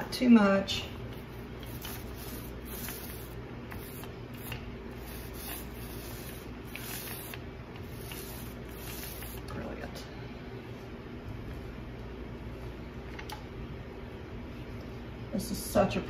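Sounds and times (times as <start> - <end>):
steady low hum: 0.0 - 16.0
paint roller squishing: 1.0 - 9.7.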